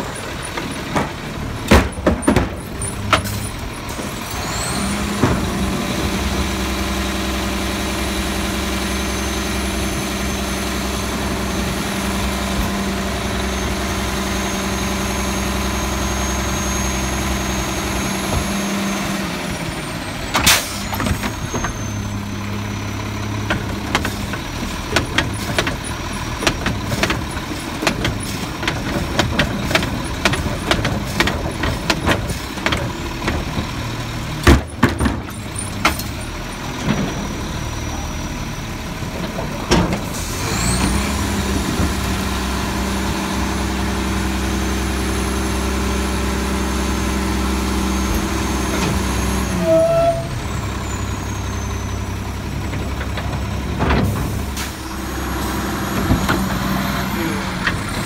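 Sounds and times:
hydraulic packer clanks and knocks: 0.0 - 4.2, 5.0 - 5.8, 23.3 - 38.2, 38.9 - 40.2, 52.6 - 54.9
truck engine with high whine: 0.0 - 58.0.

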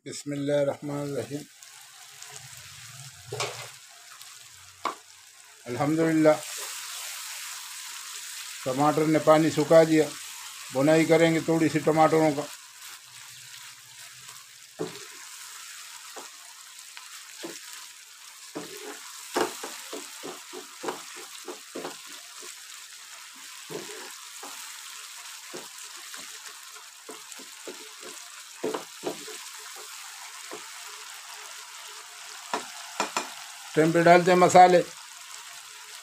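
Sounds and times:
sauce sizzling in oil: 0.0 - 36.0
spatula scraping and knocking pan: 14.8 - 16.4, 17.3 - 22.7, 23.5 - 30.8, 32.5 - 33.4.

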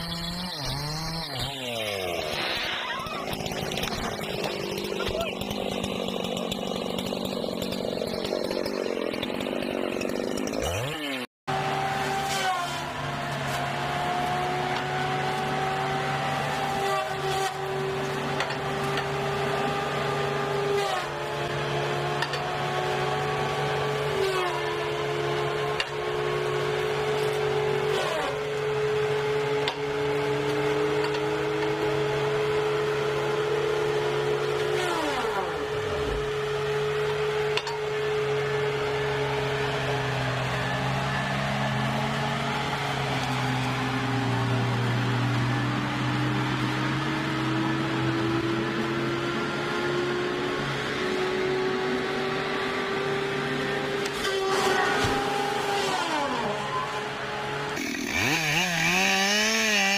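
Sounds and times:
whine of spinning saw: 0.0 - 59.9
diesel engine droning: 11.5 - 59.9.

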